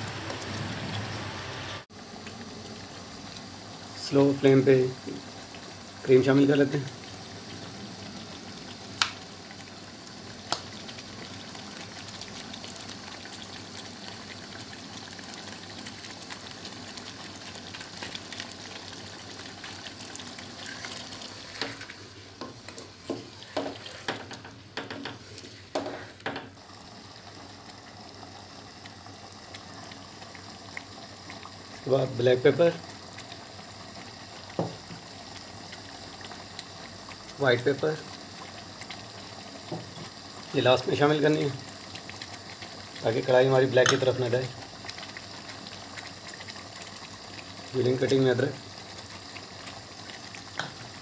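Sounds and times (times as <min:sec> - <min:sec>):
food sizzling in a pan: 0:00.0 - 0:51.0
wooden spatula scraping a pan: 0:22.4 - 0:24.3.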